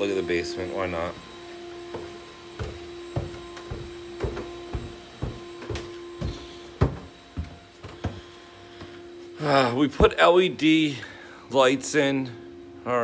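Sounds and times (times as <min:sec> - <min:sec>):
steady hum: 0:00.0 - 0:13.0
footsteps on carpeted stairs: 0:01.1 - 0:09.4.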